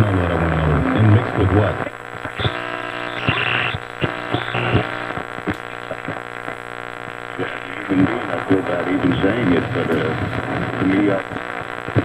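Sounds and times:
radio loudspeaker hum: 0.0 - 12.0
static crackles: 0.0 - 12.0
high radio whistles: 1.8 - 6.2.

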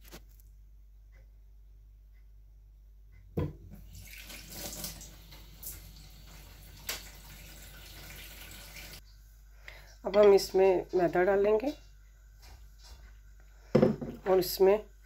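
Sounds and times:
running water: 3.7 - 9.1.

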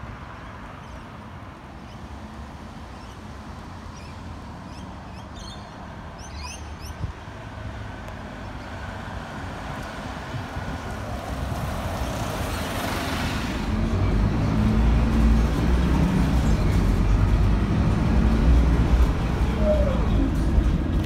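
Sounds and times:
bus approaching: 0.0 - 21.0
road traffic rumble: 0.0 - 21.0
small birds chirping: 3.9 - 7.1.

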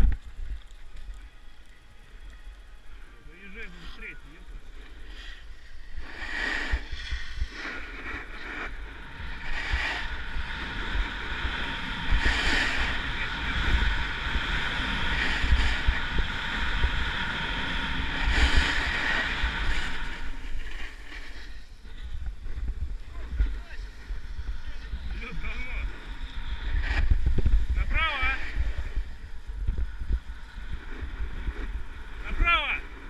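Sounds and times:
wind buffeting microphone: 0.0 - 33.0
ski edges scraping on snow: 4.9 - 29.1.

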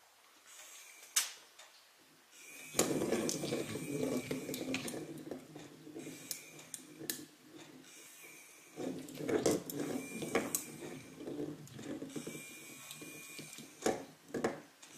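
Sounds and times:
toy motor whirring: 0.5 - 1.2, 2.4 - 14.2
ball clicking on tiles: 2.7 - 7.8, 8.7 - 14.7.

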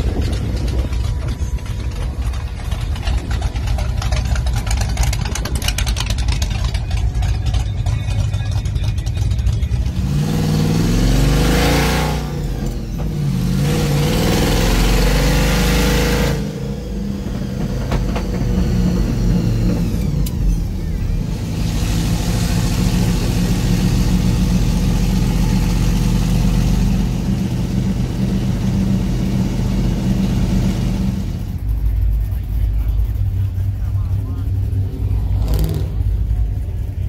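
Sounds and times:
truck engine revving: 0.0 - 37.0.

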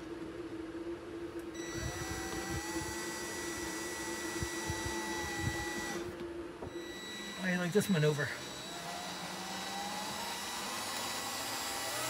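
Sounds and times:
cordless drill driving a screw: 1.6 - 6.1, 6.7 - 7.5, 8.4 - 12.0.

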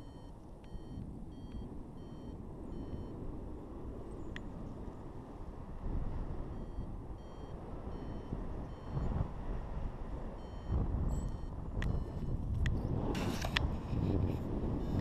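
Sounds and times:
variometer beeping: 0.0 - 3.2, 6.5 - 9.2, 10.4 - 12.8
wind rush on microphone: 0.0 - 15.0.

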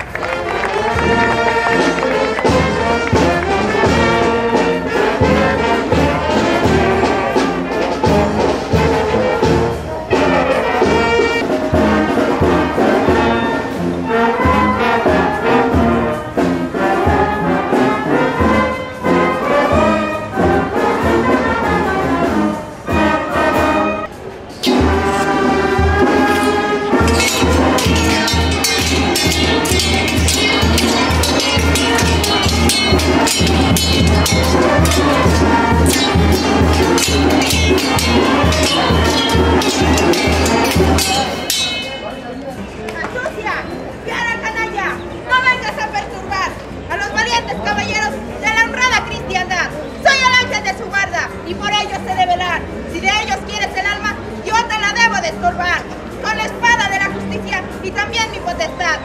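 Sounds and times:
brass band music: 0.0 - 42.6.

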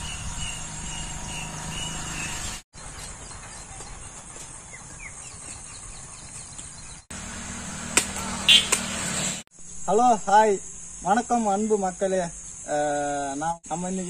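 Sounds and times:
birds chirping: 0.0 - 7.1, 8.1 - 9.0
high insect drone: 7.2 - 14.0.

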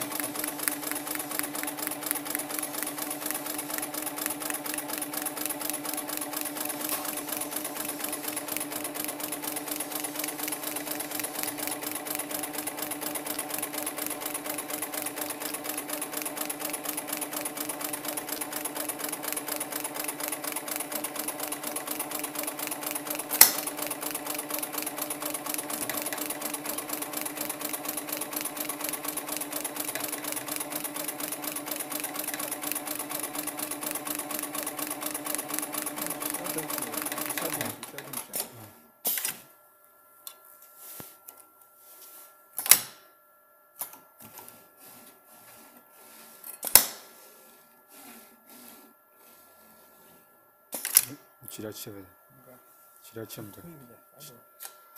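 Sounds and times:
sewing machine needle strokes: 0.0 - 38.3
motor hum: 0.0 - 38.7.

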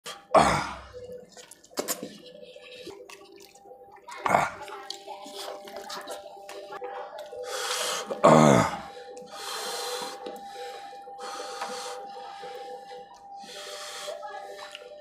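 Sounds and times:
chewing with smacking: 0.9 - 8.2.

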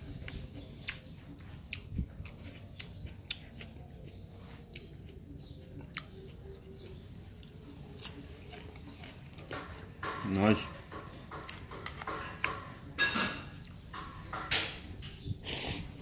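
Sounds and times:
person chewing: 0.1 - 10.0, 11.3 - 12.8, 13.5 - 13.9, 15.4 - 16.0.

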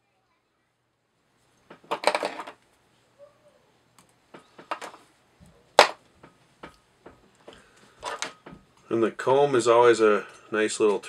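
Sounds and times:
rustling and clicking handling: 3.9 - 8.9.

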